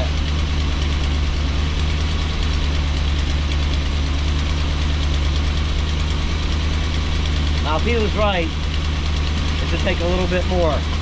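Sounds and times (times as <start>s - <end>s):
engine idling: 0.0s - 11.0s
exhaust leak: 0.0s - 11.0s.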